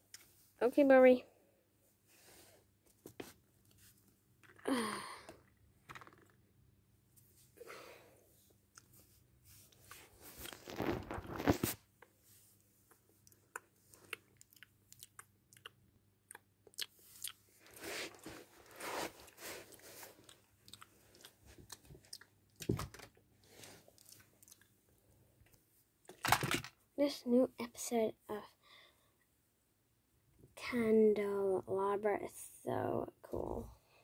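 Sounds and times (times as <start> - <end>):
person chewing and crunching: 13.2 - 18.4, 19.6 - 22.7, 24.0 - 24.7.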